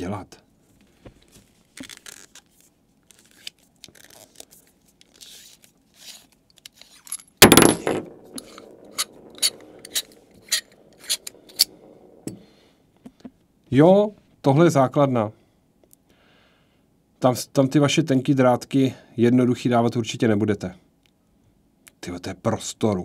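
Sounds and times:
soft scraping of metal parts: 0:05.2 - 0:07.3, 0:08.1 - 0:12.4
loud metallic clatter: 0:07.4 - 0:12.3
sharp metal clicks: 0:08.4 - 0:12.4.

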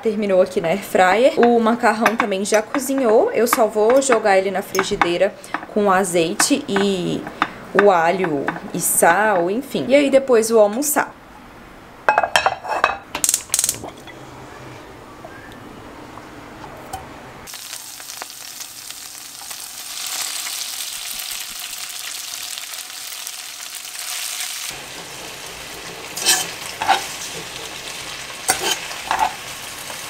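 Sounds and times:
pasta sizzling in frying pan: 0:17.4 - 0:30.0.

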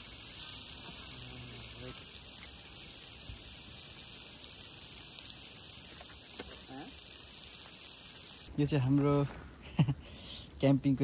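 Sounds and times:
steady high hiss: 0:00.0 - 0:11.0.

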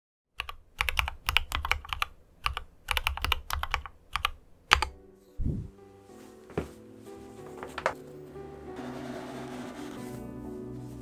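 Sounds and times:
mechanical keyboard typing: 0:00.4 - 0:05.0.

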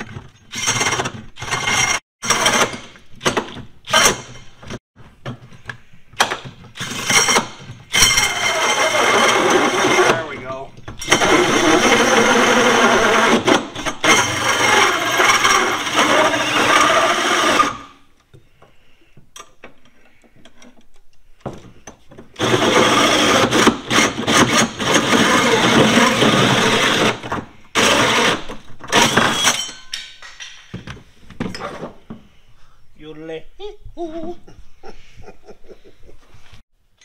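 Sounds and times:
drill with hole saw cutting metal: 0:00.5 - 0:02.8, 0:03.9 - 0:04.4, 0:06.8 - 0:10.3, 0:11.0 - 0:18.0, 0:22.4 - 0:29.6.

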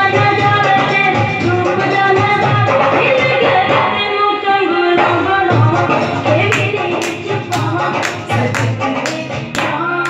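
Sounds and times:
song with steady beat: 0:00.0 - 0:10.0.

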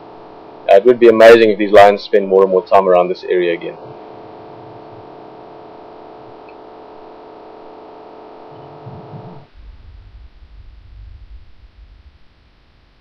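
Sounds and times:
electrical hum: 0:00.0 - 0:13.0
low rumble: 0:03.7 - 0:13.0.

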